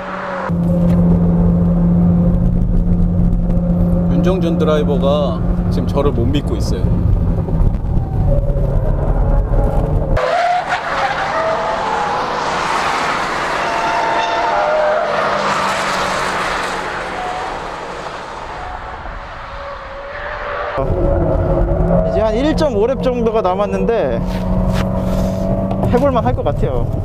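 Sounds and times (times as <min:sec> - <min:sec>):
car engine droning in cabin: 0:00.0 - 0:10.2
race cars cornering: 0:00.0 - 0:26.1.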